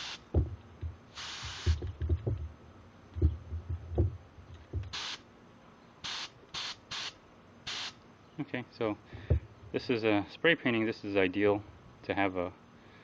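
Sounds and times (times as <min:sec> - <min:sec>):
air spray gun hissing: 0:00.0 - 0:00.4, 0:01.1 - 0:01.8, 0:04.8 - 0:05.2, 0:06.0 - 0:08.0
hose handling knocks: 0:01.7 - 0:02.5, 0:03.2 - 0:04.9.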